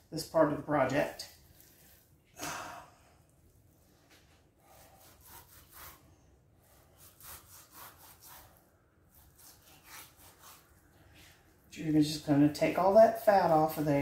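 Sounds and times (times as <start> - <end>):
knife sawing through fat: 4.6 - 6.0, 6.6 - 10.8.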